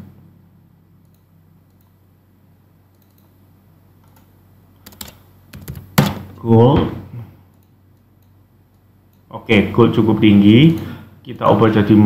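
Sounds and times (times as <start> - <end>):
low room hum: 0.0 - 12.0
computer keyboard key clicks: 4.1 - 5.9.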